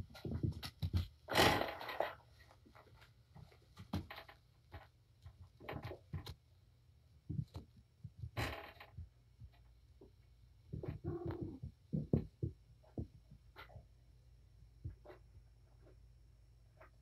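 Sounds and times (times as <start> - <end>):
kittens scampering on padded floor: 0.0 - 6.4.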